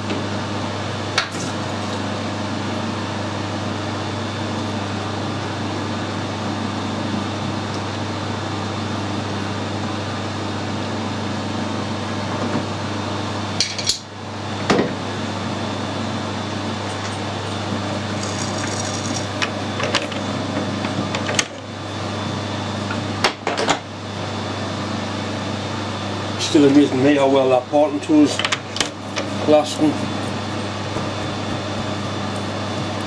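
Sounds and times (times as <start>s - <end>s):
low machine hum: 0.0s - 33.0s.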